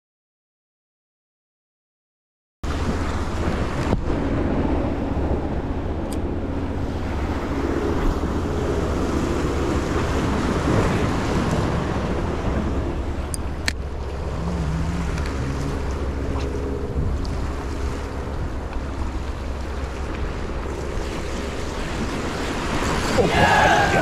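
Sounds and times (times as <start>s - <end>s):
wind buffeting microphone: 2.6s - 24.0s
surf washing against rocks: 6.8s - 24.0s.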